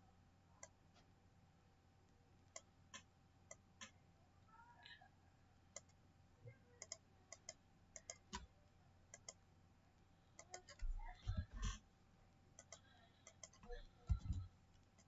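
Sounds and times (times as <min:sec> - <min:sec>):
computer mouse clicks: 0:02.5 - 0:04.0, 0:05.7 - 0:06.0, 0:06.8 - 0:08.5, 0:09.1 - 0:09.4, 0:10.4 - 0:11.8, 0:12.6 - 0:15.0
low thumps: 0:13.7 - 0:14.5.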